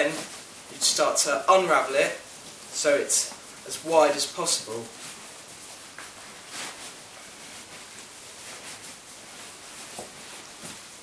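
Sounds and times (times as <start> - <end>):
mat rustling: 0.0 - 11.0
soft scuffs: 4.6 - 11.0.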